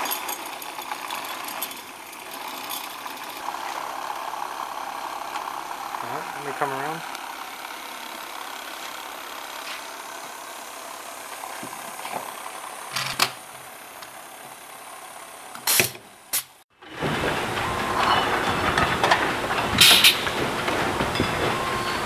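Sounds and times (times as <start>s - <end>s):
corking machine hum: 16.8s - 22.0s
sharp machine clacks: 17.4s - 22.0s.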